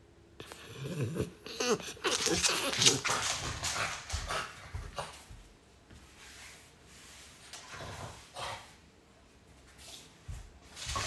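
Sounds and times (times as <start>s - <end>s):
dog vocalizing: 0.4s - 3.2s.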